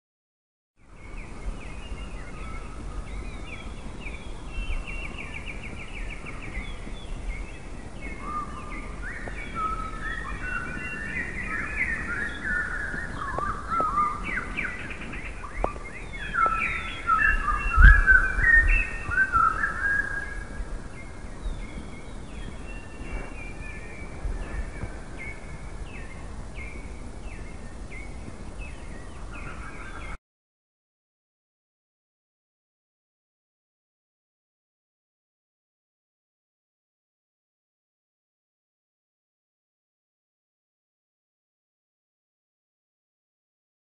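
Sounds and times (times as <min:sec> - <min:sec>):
songbirds singing: 0:00.8 - 0:30.2.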